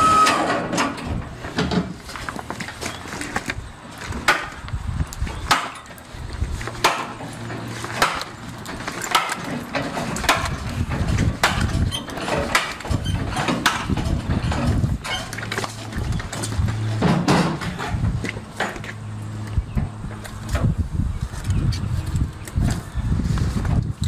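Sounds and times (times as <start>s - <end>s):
cleaver chopping meat and bone: 6.8s - 7.2s, 8.0s - 8.3s.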